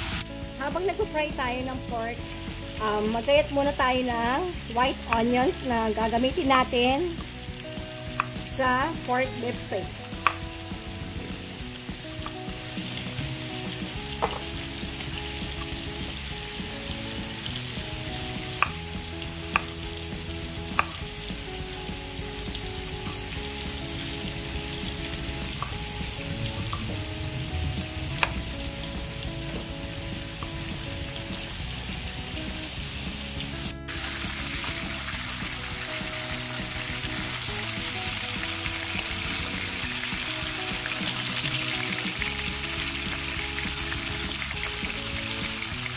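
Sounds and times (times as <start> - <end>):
light background music: 0.0 - 45.9
meat sizzling in a wok: 0.0 - 45.9
knife tapping on cutting board: 8.1 - 8.4, 14.2 - 14.5, 19.5 - 19.8, 20.7 - 21.0.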